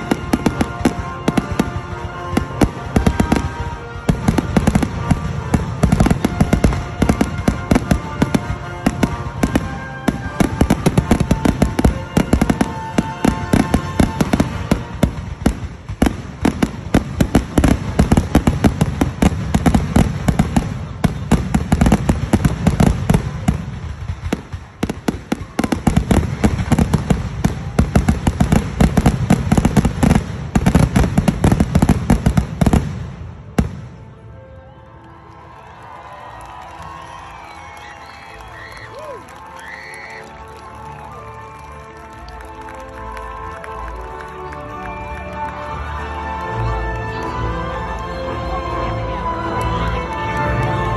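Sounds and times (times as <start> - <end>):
fireworks bangs and crackles: 0.0 - 34.3.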